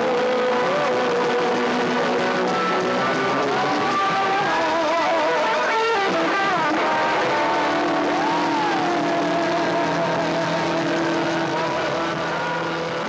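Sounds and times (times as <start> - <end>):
guitar lead note sliding: 0.0 - 13.0
rock band sustained chord: 0.0 - 13.0.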